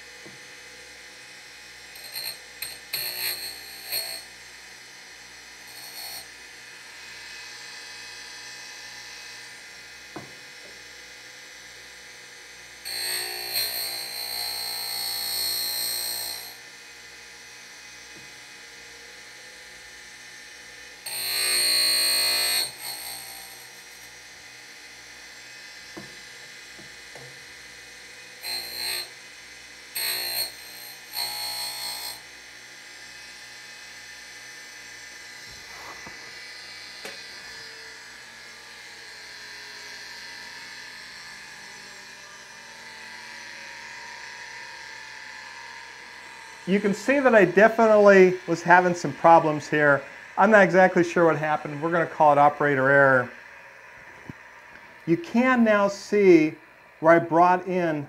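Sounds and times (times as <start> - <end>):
grinder wheel spinning: 1.7 - 4.4, 5.5 - 7.4, 12.9 - 16.7, 20.9 - 32.4, 34.8 - 56.1
high-pitched grinding: 2.0 - 4.3, 5.7 - 6.3, 21.1 - 24.0, 28.4 - 29.2, 30.0 - 32.2.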